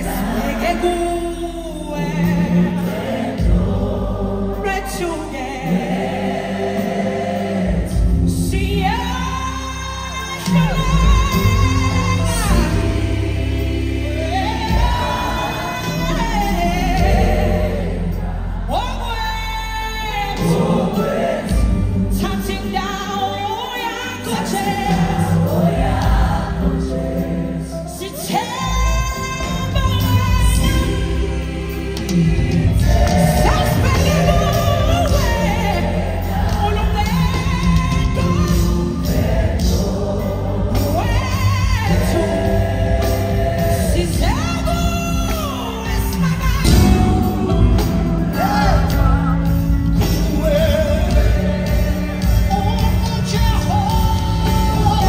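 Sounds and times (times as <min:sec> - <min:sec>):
band playing gospel music: 0:00.0 - 0:55.0
choir singing: 0:00.0 - 0:55.0
lead vocalist singing: 0:00.0 - 0:55.0
woman singing into a microphone: 0:08.3 - 0:13.1
bass line: 0:28.7 - 0:55.0.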